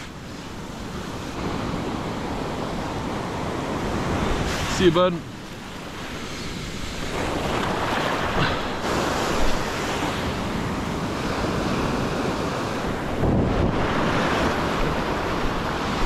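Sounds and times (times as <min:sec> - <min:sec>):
surf breaking in shallow water: 0:00.0 - 0:16.0
wind buffeting microphone: 0:05.8 - 0:16.0.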